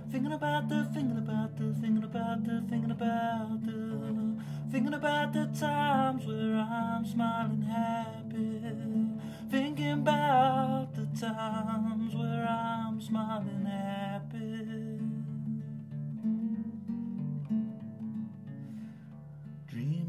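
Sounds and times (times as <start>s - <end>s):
person singing: 0.0s - 15.6s
guitar accompaniment: 0.0s - 20.0s.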